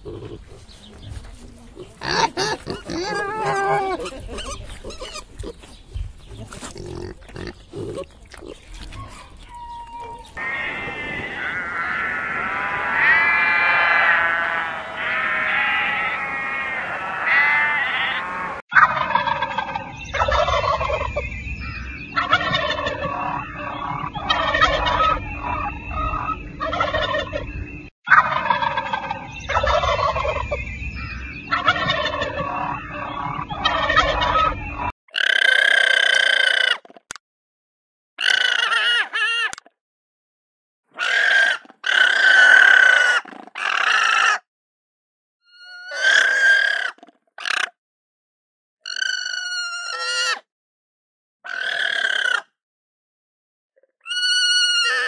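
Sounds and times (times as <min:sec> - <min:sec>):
piglets grunting and squealing: 0:00.0 - 0:00.6, 0:01.8 - 0:05.6, 0:06.4 - 0:18.6, 0:45.6 - 0:47.6
sheep bleating: 0:10.4 - 0:18.6
turkey gobbling: 0:18.8 - 0:21.1, 0:22.2 - 0:27.4, 0:28.1 - 0:30.5, 0:31.5 - 0:34.6.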